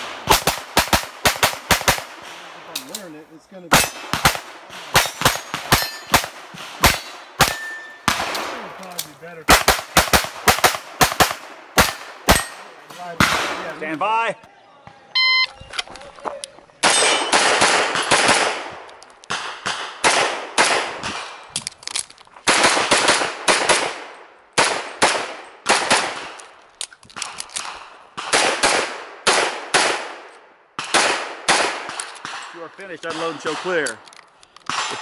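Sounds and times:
pistol shots: 0.0s - 13.9s, 16.8s - 21.5s, 22.4s - 26.5s, 27.2s - 34.0s, 34.7s - 35.0s
shot timer beep: 15.2s - 15.6s.

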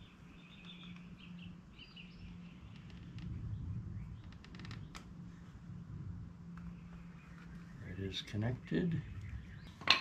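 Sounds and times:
birds chirping faintly: 0.0s - 10.0s
steady low hum: 0.0s - 10.0s.

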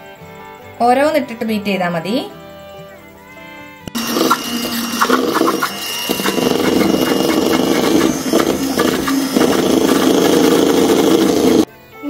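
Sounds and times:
electric hand mixer whirring: 3.9s - 11.7s.

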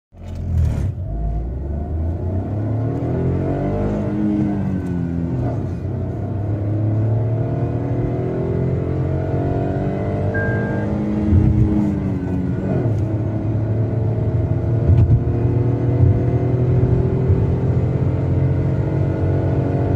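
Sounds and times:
car engine accelerating: 0.2s - 19.9s
short beep: 10.3s - 11.2s.

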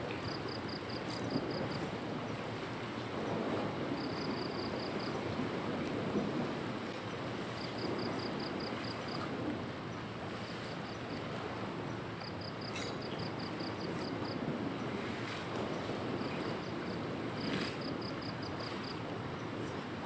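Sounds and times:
waves washing on rocks: 0.0s - 20.0s
wind: 0.0s - 20.0s
insect chirping: 0.2s - 1.9s, 4.0s - 5.2s, 7.6s - 9.2s, 10.6s - 11.1s, 12.2s - 14.4s, 16.5s - 19.0s.

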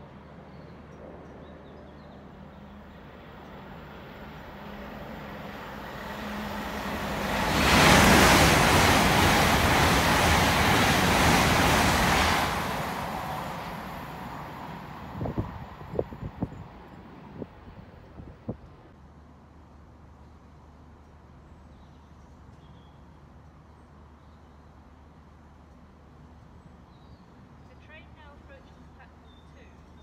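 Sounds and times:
express train passing: 0.0s - 18.9s.

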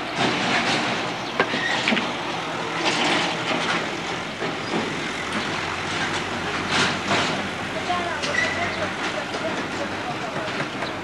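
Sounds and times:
outdoor street background noise: 0.0s - 11.0s.

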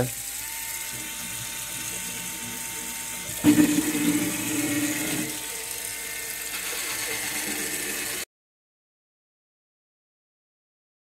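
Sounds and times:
spin scrubber motor whirring: 0.0s - 8.3s
running tap water: 0.1s - 8.3s
brush scrubbing a sink: 3.5s - 5.4s.

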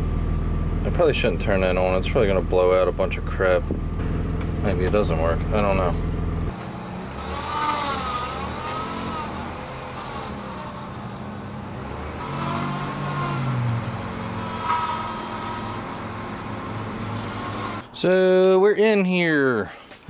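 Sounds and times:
car engine running: 0.0s - 17.9s
power steering pump whining: 0.0s - 18.1s.

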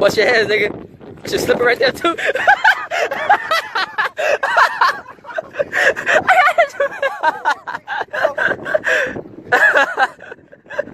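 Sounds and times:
people laughing: 2.0s - 10.9s
excited voices exclaiming: 4.4s - 8.6s.

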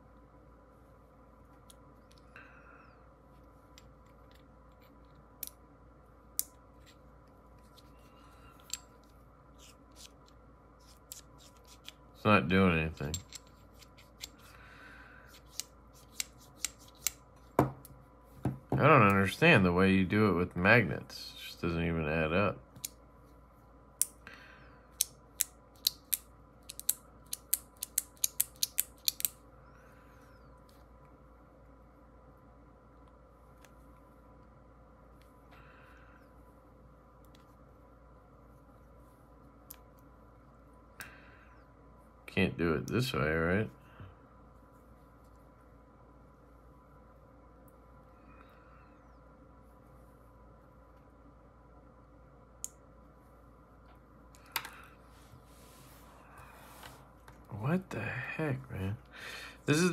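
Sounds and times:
small plastic toy parts clicking: 25.0s - 29.4s.

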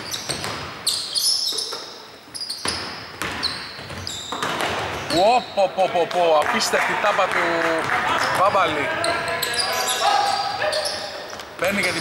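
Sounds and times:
sneakers squeaking: 0.0s - 5.9s, 8.3s - 12.0s
basketball bouncing on hardwood: 2.6s - 4.8s.

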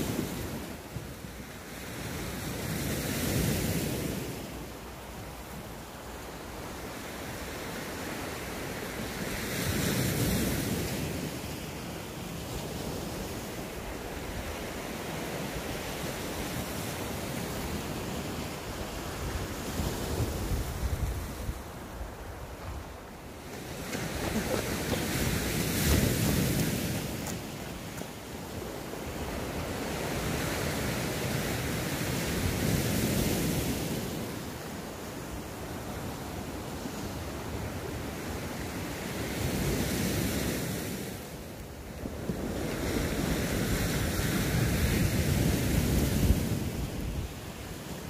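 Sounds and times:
sea waves breaking on shore: 0.0s - 48.0s
wind buffeting microphone: 23.6s - 31.5s.

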